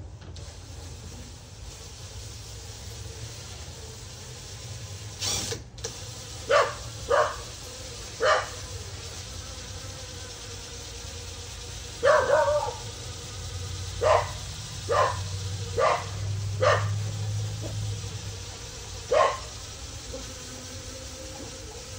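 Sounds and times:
brief hiss: 0:05.1 - 0:07.3
dog barking: 0:06.5 - 0:07.5, 0:08.2 - 0:08.6, 0:12.0 - 0:12.8, 0:14.0 - 0:17.0, 0:19.1 - 0:19.5.

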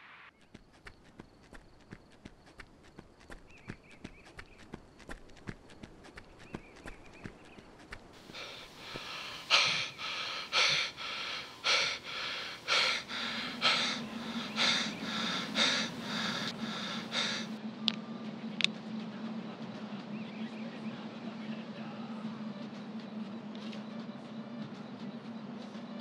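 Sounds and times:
low steady hum: 0:04.8 - 0:25.6
man panting out of breath: 0:08.2 - 0:17.6.

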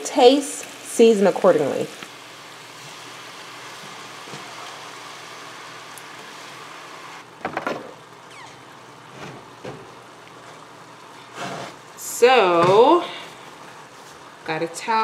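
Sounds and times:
food sizzling in pans: 0:00.0 - 0:15.0.

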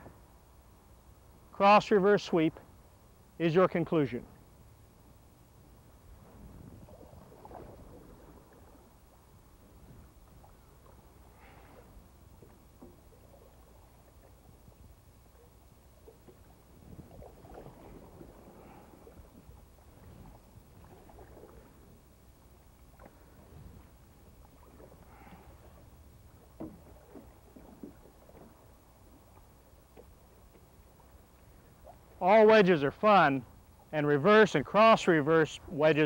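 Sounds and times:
paddle swishing and splashing: 0:06.1 - 0:33.2.

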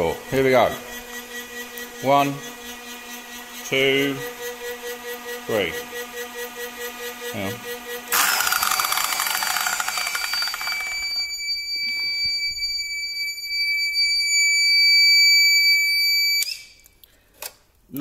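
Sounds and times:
circular saw motor: 0:00.4 - 0:11.3
high-pitched alarm beep: 0:08.2 - 0:16.7.

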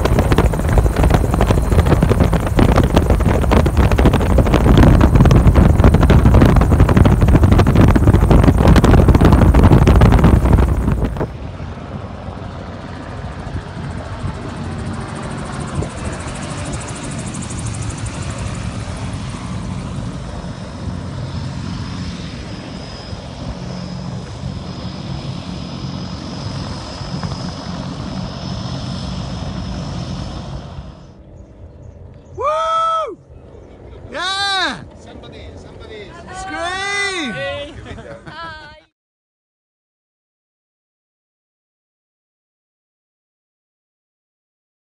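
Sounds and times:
wind buffeting: 0:00.0 - 0:11.8
gyrocopter engine drone: 0:00.0 - 0:38.8.

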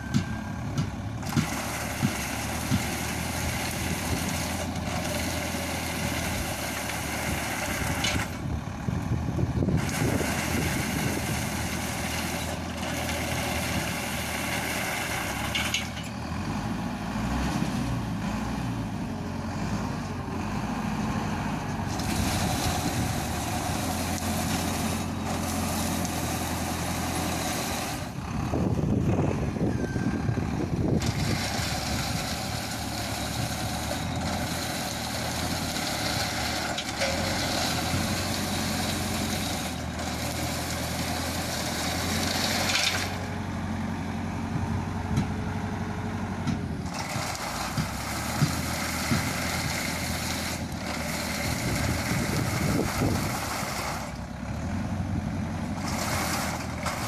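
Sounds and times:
harvesting machine engine running: 0:00.0 - 0:57.0.

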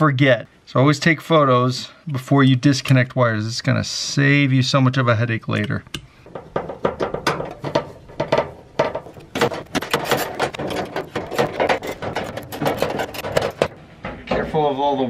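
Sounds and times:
sheet metal clattering: 0:06.3 - 0:13.8.

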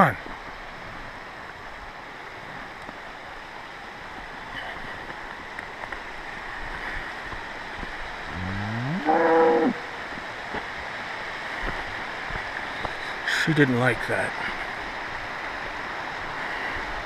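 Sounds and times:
creek rushing: 0:00.0 - 0:17.0
cow mooing: 0:08.3 - 0:09.9.

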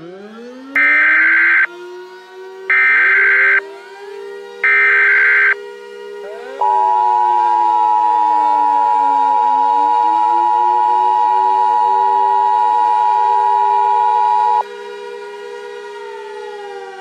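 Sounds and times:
two-tone alert alarm: 0:00.8 - 0:01.8, 0:02.7 - 0:03.6, 0:04.6 - 0:05.6, 0:06.5 - 0:14.6
drone with shifting pitch: 0:00.8 - 0:02.0, 0:02.7 - 0:05.6, 0:06.2 - 0:14.7.

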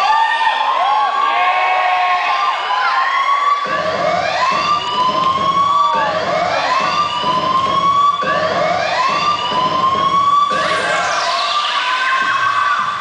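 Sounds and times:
siren wail sound effect: 0:02.9 - 0:13.0.

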